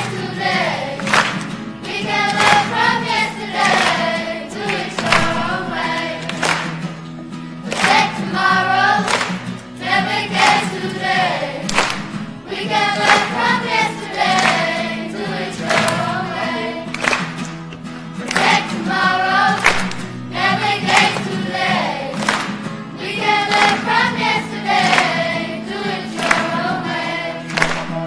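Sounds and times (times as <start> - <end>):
children's choir singing: 0.0 - 28.0
low accompaniment: 1.8 - 9.2.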